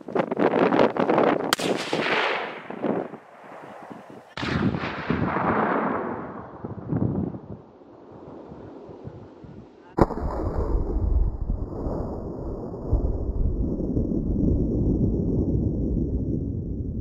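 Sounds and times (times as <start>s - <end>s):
shotgun shot with rolling echo: 1.5s - 7.0s
loud booming rumble: 10.0s - 17.0s.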